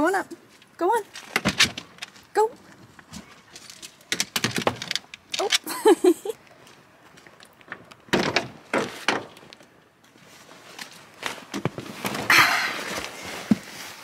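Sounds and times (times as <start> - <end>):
rustling or thudding: 1.1 - 5.6
clunks and knocks: 7.7 - 9.4.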